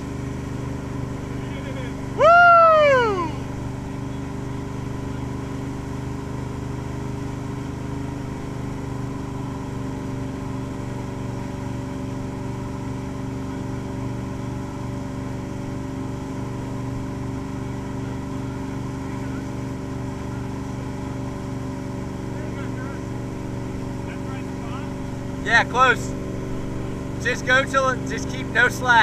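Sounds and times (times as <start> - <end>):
boat engine drone: 0.0 - 29.0
person whooping: 2.2 - 3.4.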